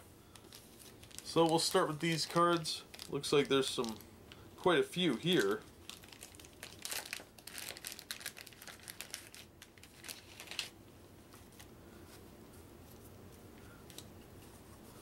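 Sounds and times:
plastic wrapper crinkling: 0.3 - 11.7.

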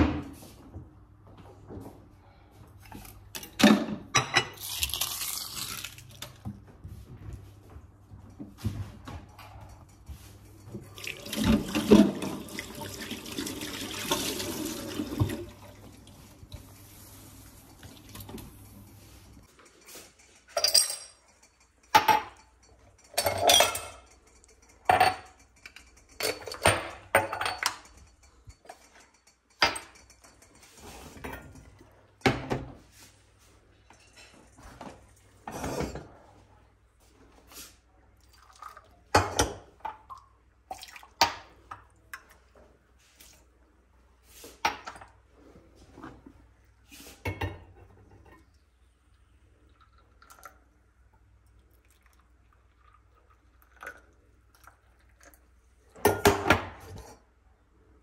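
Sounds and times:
water running from tap: 10.8 - 18.9
dishes and glasses clinking: 18.3 - 32.8.

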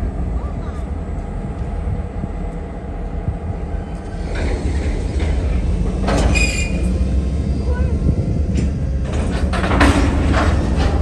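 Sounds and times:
freight train rumbling past: 0.0 - 11.0
high train squeal: 3.7 - 9.3.

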